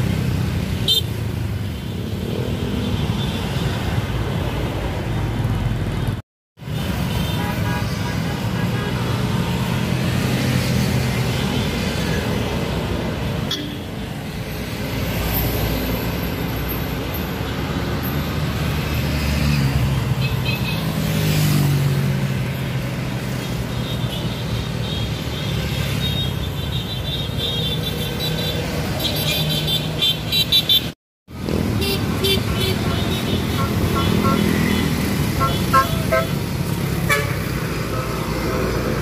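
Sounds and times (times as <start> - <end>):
car horns tooting: 31.8 - 36.4, 37.0 - 37.5.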